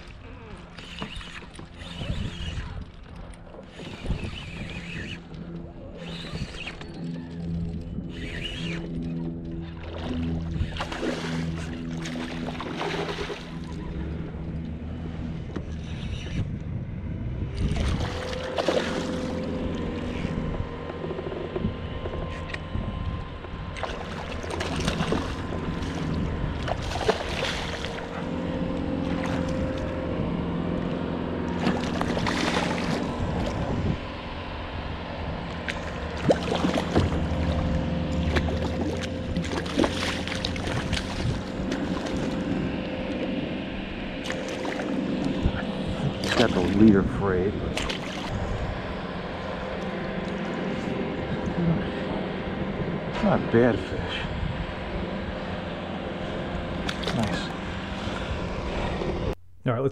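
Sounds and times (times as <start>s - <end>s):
fish splashing in water: 23.8s - 28.2s, 31.6s - 33.6s, 35.6s - 42.4s, 47.7s - 48.4s.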